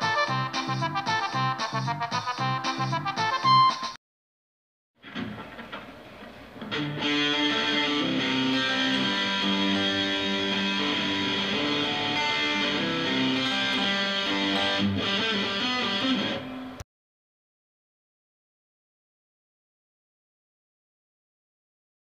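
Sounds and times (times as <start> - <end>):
guitar-led instrumental music: 0.0 - 4.0, 5.0 - 16.8.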